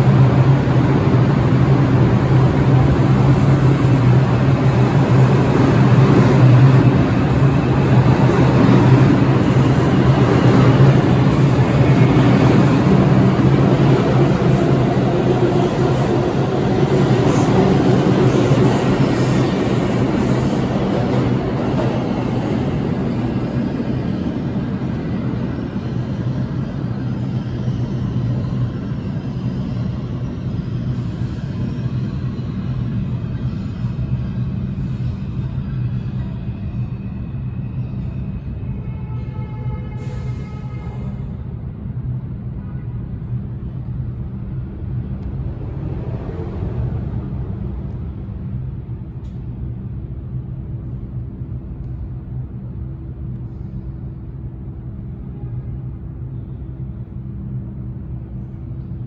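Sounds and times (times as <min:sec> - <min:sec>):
subway train pulling out: 0:00.0 - 0:59.0.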